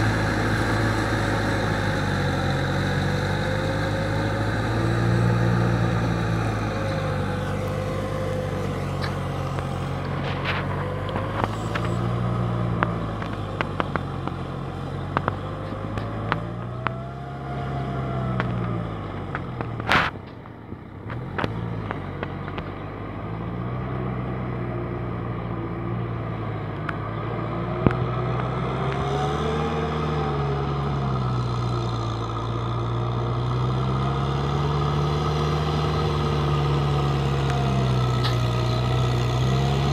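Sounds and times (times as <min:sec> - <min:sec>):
tractor diesel engine under load: 0:00.0 - 0:39.9.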